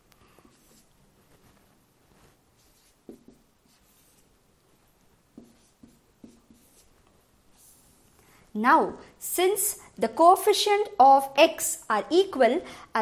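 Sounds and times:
marker scratching on whiteboard: 0.4 - 4.4, 5.3 - 8.1.

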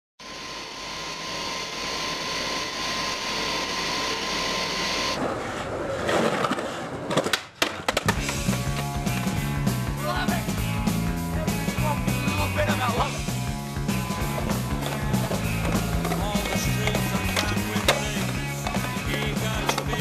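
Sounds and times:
skateboard wheels rolling: 5.2 - 11.1, 12.2 - 20.0
rock music: 8.0 - 20.0.

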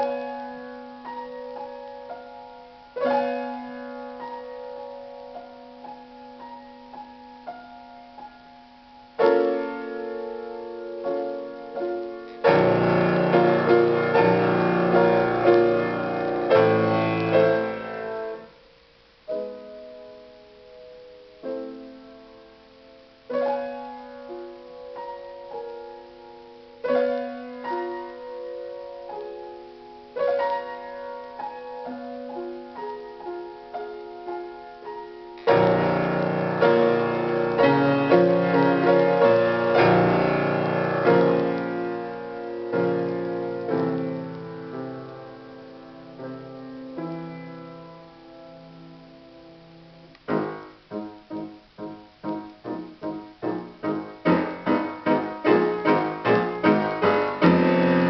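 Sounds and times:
solo piano piece: 0.0 - 58.0.

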